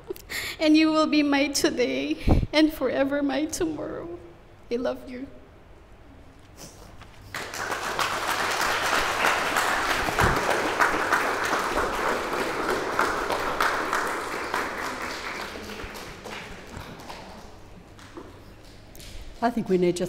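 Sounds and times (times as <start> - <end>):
crowd applauding: 7.2 - 18.9.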